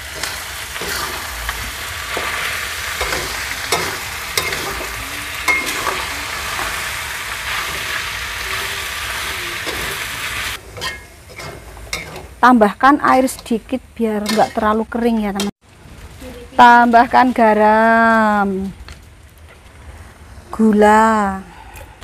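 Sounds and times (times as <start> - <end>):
metal spatula scraping pan: 0.0 - 12.4, 14.2 - 14.8
food sizzling in oil: 0.0 - 19.4.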